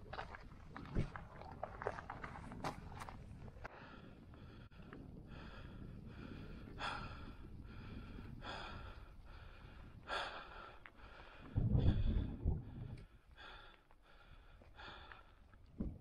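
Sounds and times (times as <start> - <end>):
wind rumble on microphone: 0.0 - 13.6, 15.6 - 16.0
person breathing hard: 3.6 - 15.5.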